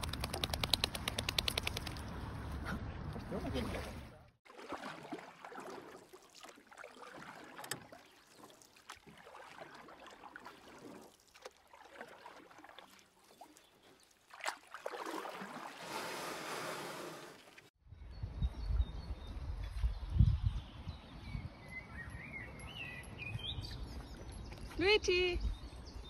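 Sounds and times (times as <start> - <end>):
water splashing and lapping: 0.0 - 17.7.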